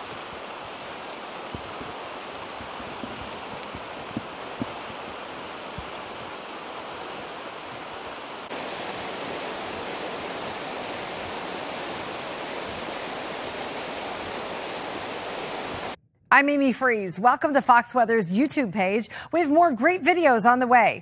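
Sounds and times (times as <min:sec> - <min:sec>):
floodwater rushing: 0:00.0 - 0:16.0.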